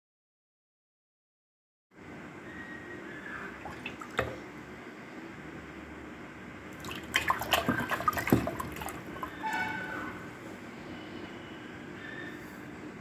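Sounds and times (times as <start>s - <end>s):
hands splashing in water: 3.6s - 4.4s, 6.8s - 9.5s.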